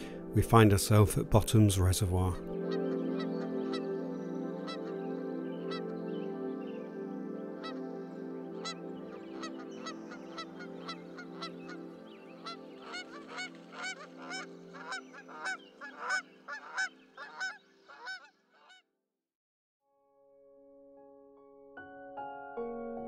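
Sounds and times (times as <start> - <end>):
held musical chord: 0.0 - 17.2
geese honking: 4.6 - 5.0, 8.6 - 18.8.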